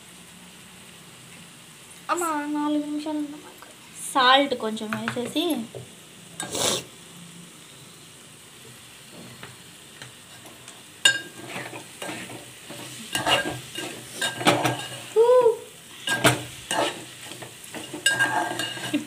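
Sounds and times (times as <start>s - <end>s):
curry simmering: 5.7s - 19.0s
spatula scraping metal pot: 11.1s - 15.1s, 16.0s - 19.0s.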